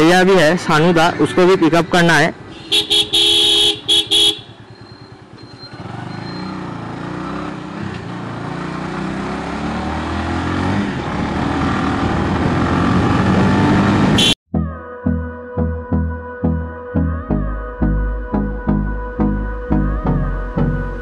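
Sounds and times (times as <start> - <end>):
motorcycle engine accelerating: 3.6 - 14.4.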